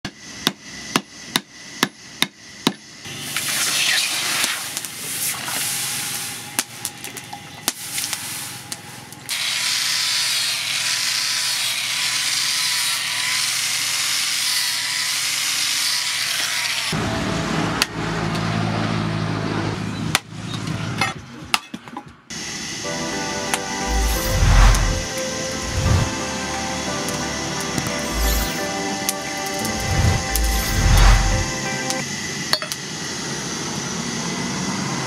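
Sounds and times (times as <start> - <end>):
steady hiss with faint whine: 3.1 - 9.3
workshop clatter and knocks: 20.2 - 22.3.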